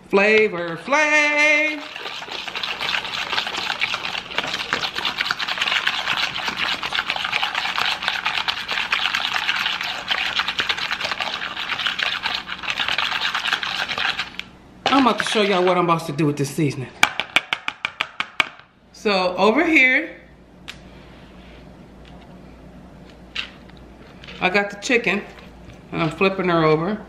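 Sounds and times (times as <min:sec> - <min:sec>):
whisk beating in a bowl: 0:01.4 - 0:15.7.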